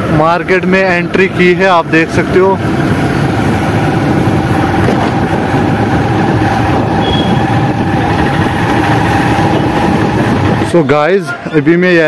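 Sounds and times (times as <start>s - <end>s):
motorcycle engine running: 0.0s - 10.8s
wind on microphone: 2.2s - 11.2s.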